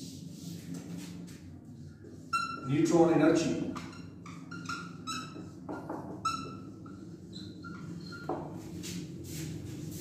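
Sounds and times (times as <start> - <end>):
marker squeaking on whiteboard: 2.1 - 8.6.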